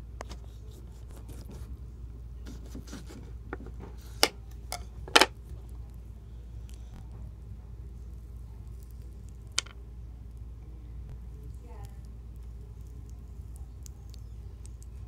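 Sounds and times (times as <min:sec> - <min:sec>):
knife cutting through lemon: 0:02.5 - 0:03.3.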